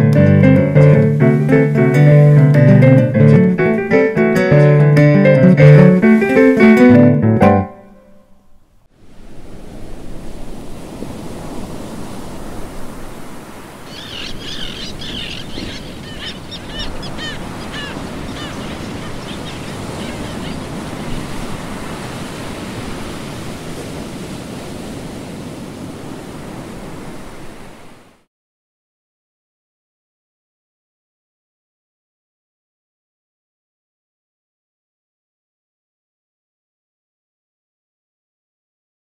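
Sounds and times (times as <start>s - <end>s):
sea surf washing onto beach: 0.0s - 7.1s, 8.9s - 28.3s
high chirping calls: 13.9s - 21.3s.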